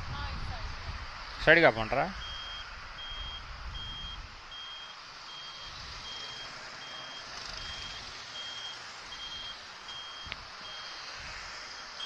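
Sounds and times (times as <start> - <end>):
road and wind noise: 0.0 - 12.0
turn indicator buzzer beeping: 2.2 - 11.1.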